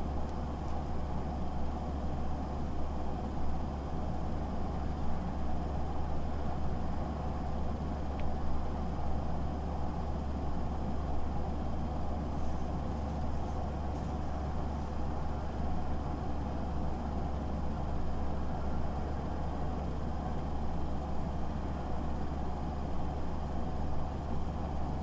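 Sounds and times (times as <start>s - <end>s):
low rumbling hum: 11.2s - 19.3s.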